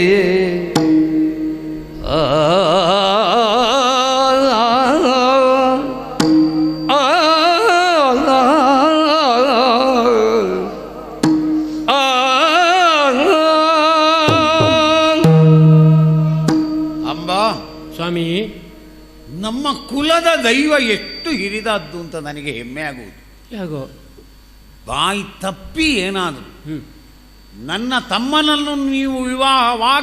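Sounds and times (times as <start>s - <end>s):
steady drone: 0.0s - 23.5s
person singing ornamented phrases: 1.7s - 11.3s, 11.9s - 22.6s
drum strokes: 11.2s - 12.0s, 14.2s - 22.8s.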